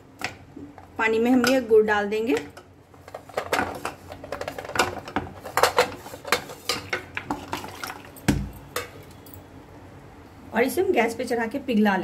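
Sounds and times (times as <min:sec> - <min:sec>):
lumps clattering in metal saucepan: 0:03.1 - 0:08.1.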